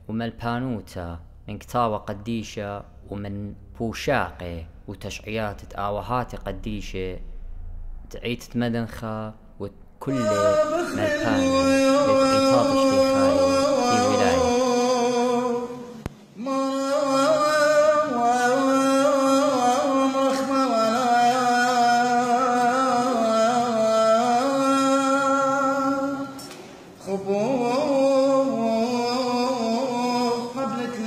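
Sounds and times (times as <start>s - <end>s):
man chanting a hymn: 10.0s - 26.4s, 27.0s - 31.0s.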